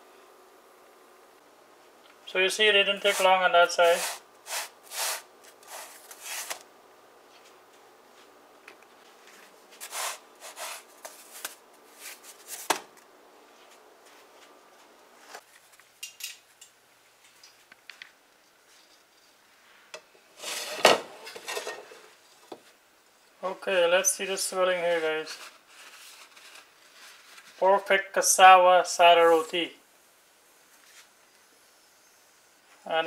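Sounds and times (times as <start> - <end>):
faint steady hum: 0.0 - 33.0
flatbread scraping in frying pan: 20.3 - 22.2.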